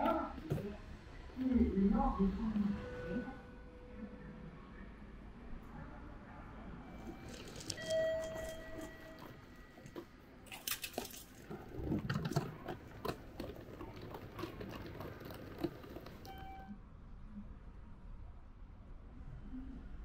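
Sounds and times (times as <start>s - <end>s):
suitcase wheels clicking on tiles: 7.0s - 16.7s.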